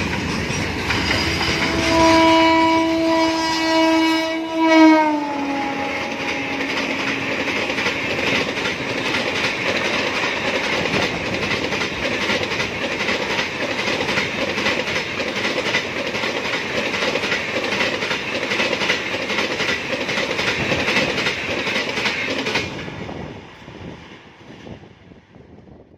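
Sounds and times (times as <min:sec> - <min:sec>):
wheels clickety-clack on rails: 0:00.0 - 0:02.5, 0:04.9 - 0:25.8
train coaches rumbling past: 0:00.0 - 0:25.9
train horn falling in pitch: 0:00.5 - 0:07.4.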